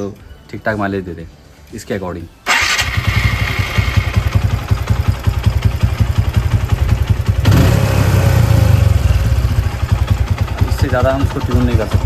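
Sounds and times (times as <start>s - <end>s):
motorcycle engine running unevenly: 3.0s - 12.0s.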